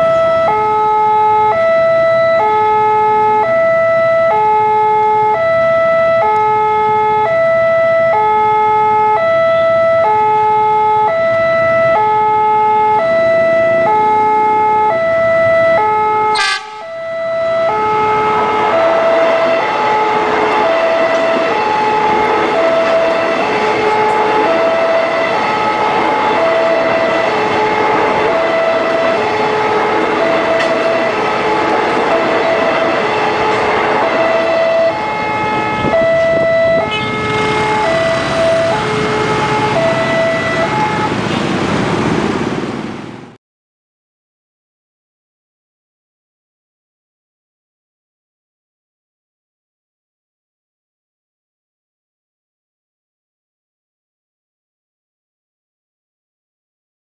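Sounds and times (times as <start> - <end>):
electric train passing: 16.3 - 43.3
level crossing alarm chime: 20.6 - 27.4, 28.1 - 29.2, 30.2 - 31.2, 32.1 - 33.1, 34.0 - 35.1, 35.7 - 40.9.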